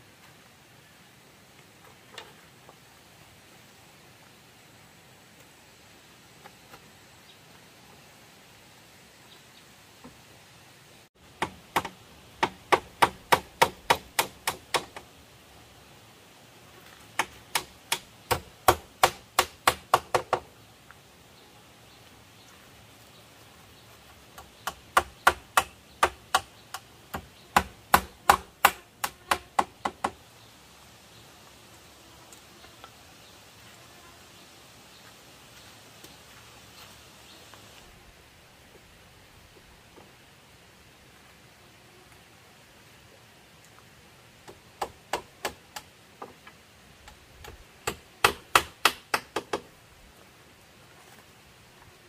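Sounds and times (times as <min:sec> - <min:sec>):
hand tool striking bamboo: 0:11.4 - 0:15.1, 0:17.1 - 0:20.4, 0:24.4 - 0:30.2, 0:47.4 - 0:49.7.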